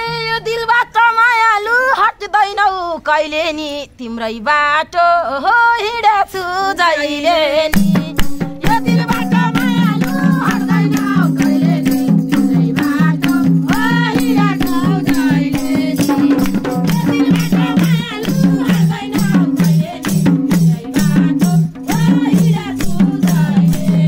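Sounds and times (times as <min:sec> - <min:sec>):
hand drums playing quick beat: 0:07.7 - 0:24.0
wavering high melody: 0:07.9 - 0:22.6.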